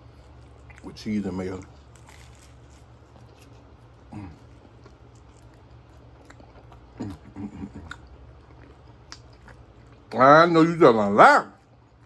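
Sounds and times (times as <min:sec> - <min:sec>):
wet chewing: 0:00.0 - 0:10.2
person humming: 0:04.1 - 0:04.4.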